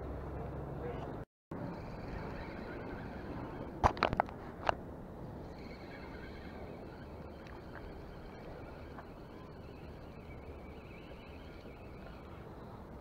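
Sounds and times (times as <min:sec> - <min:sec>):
fishing reel whirring: 0:01.6 - 0:03.8, 0:05.4 - 0:13.0.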